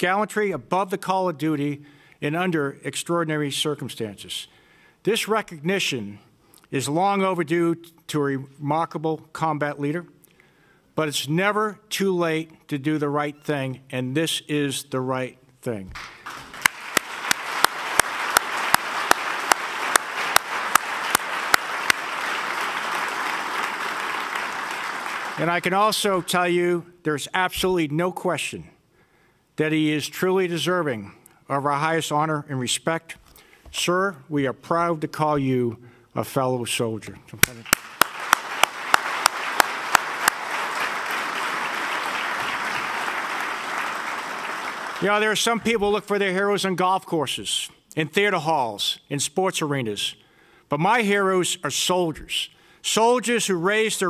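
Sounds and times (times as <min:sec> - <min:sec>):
loud close hand claps: 0:15.9 - 0:25.7, 0:37.4 - 0:45.1
audience applauding: 0:16.0 - 0:26.2, 0:37.4 - 0:45.4.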